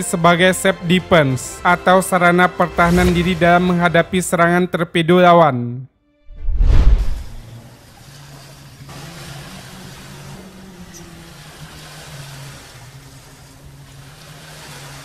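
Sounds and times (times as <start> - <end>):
low boom: 6.3 - 7.5
water noise: 6.4 - 15.0
boat engine hum: 7.2 - 15.0.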